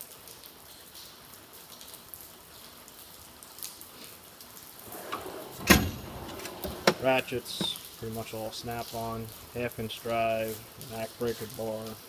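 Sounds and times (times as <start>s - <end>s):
metal drawer sliding: 4.8s - 7.8s
drawer bang: 4.9s - 7.8s.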